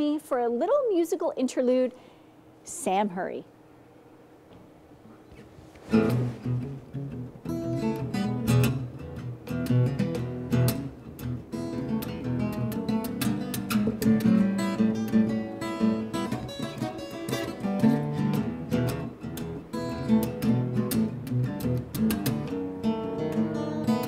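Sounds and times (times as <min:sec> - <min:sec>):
picked blues guitar: 0:05.3 - 0:24.0
acoustic guitar strum: 0:05.9 - 0:24.0.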